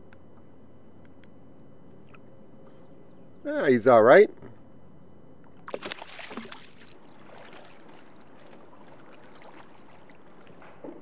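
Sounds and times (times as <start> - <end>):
water splashing against kayak: 5.6 - 11.0
faint wash of water: 5.7 - 11.0.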